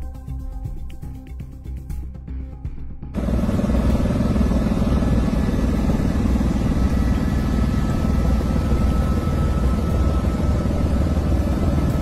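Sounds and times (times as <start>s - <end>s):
helicopter engine and rotor drone: 3.1s - 12.0s.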